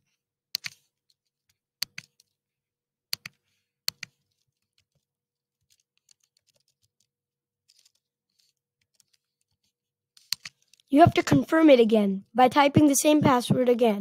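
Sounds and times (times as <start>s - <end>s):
computer keyboard typing: 0.6s - 0.8s, 1.8s - 2.3s, 3.2s - 5.0s, 5.7s - 7.1s, 10.2s - 11.1s.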